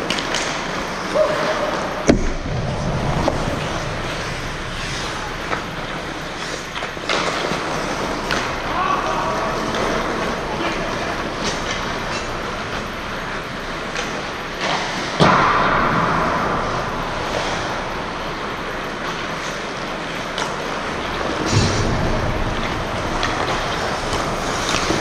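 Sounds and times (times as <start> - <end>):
hockey stick clicks: 0.0 - 1.4, 23.1 - 25.0
puck crack: 0.0 - 25.0
skate blades scraping ice: 2.8 - 15.2, 22.4 - 25.0.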